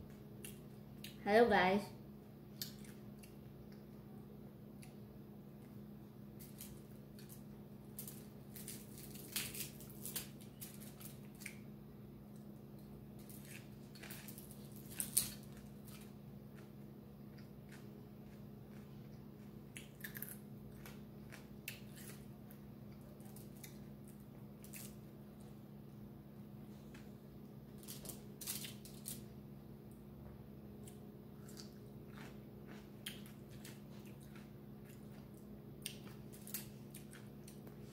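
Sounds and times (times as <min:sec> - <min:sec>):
chewing: 0:13.3 - 0:25.0, 0:30.8 - 0:37.8.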